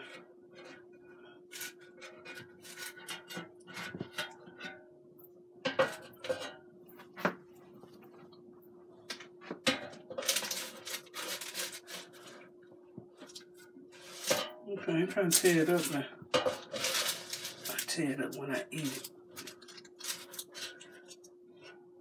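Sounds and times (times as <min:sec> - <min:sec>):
faint steady hum: 0:00.0 - 0:22.0
spatula scraping in basket: 0:10.1 - 0:12.5, 0:13.2 - 0:21.2.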